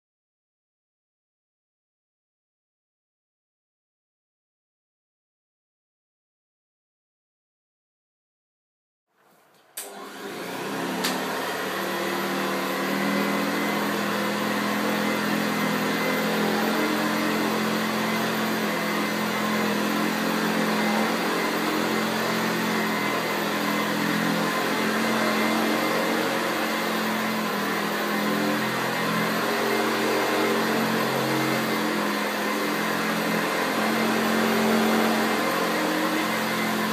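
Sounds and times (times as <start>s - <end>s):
vacuum cleaner running: 9.2s - 36.9s.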